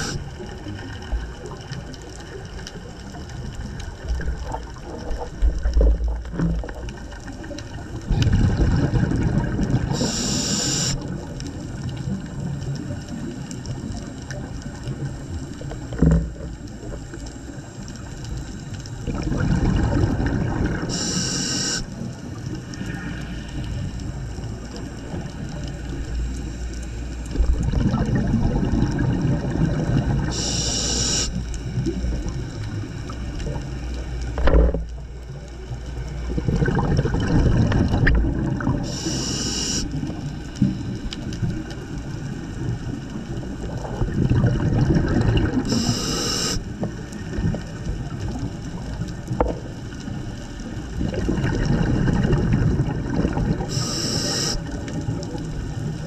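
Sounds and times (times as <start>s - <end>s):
regulator inhalation hiss: 0.0s - 0.3s, 9.9s - 11.0s, 20.9s - 22.0s, 30.2s - 31.5s, 38.8s - 41.0s, 45.6s - 46.8s, 53.7s - 54.8s
gurgling exhaled bubbles: 0.0s - 56.0s.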